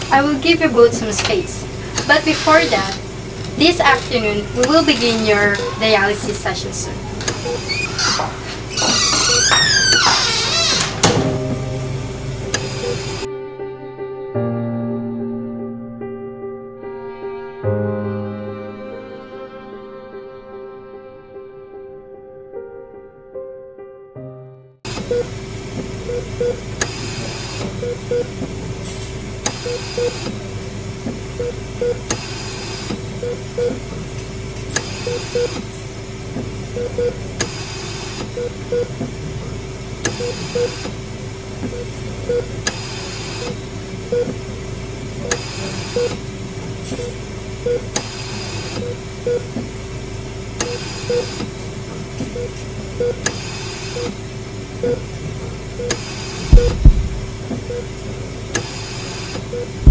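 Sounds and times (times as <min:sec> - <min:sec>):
steady equipment hum: 0:00.0 - 0:13.3, 0:24.9 - 0:59.9
short double beeps: 0:55.8 - 0:57.8
machine whoosh: 0:56.1 - 0:57.5.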